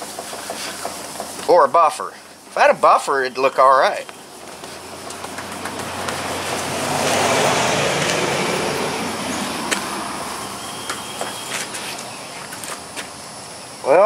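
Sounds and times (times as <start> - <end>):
road vehicle passing: 3.2 - 13.8.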